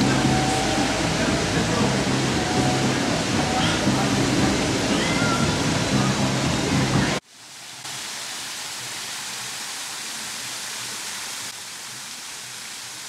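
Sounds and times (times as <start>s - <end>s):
music: 0.0s - 7.2s
fountain water splashing: 0.0s - 13.0s.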